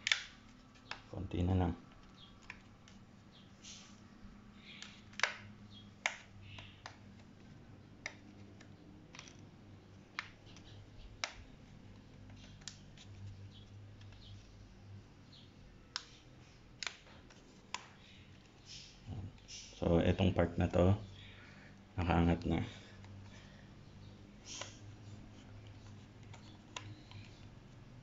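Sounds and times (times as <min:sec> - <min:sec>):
sharp plastic clicks: 0:00.0 - 0:01.1, 0:04.6 - 0:07.4.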